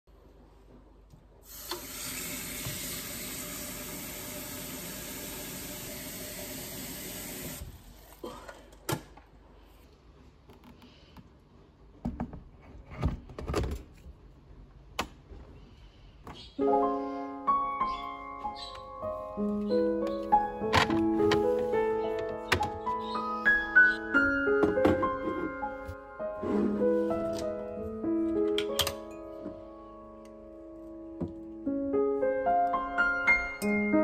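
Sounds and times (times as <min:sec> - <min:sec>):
tap running into kettle: 0:02.6 - 0:03.0.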